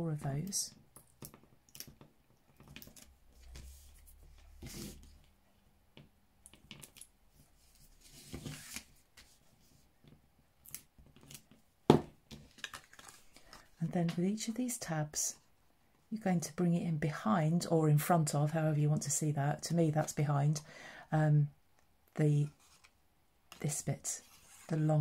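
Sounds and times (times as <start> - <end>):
card rustling: 12.4 - 13.7.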